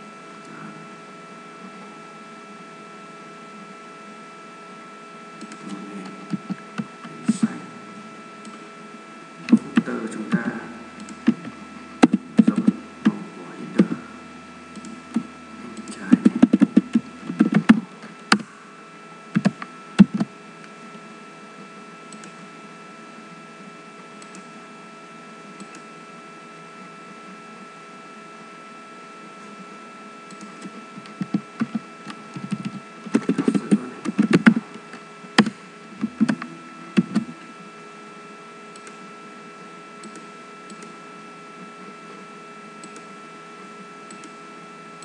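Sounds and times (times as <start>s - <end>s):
steady electrical hum: 0.0s - 45.0s
computer keyboard typing: 5.4s - 5.7s, 11.0s - 13.2s, 14.7s - 18.4s, 30.3s - 34.7s, 38.7s - 39.0s, 40.0s - 40.9s, 42.8s - 43.1s, 44.1s - 44.4s.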